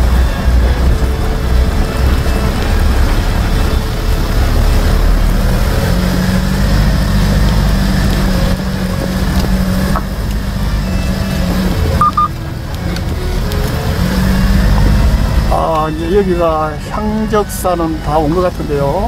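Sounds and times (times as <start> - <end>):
tyres rolling over stones: 0.0 - 19.0
vehicle engine humming: 0.0 - 19.0
short high beeps: 12.0 - 12.3.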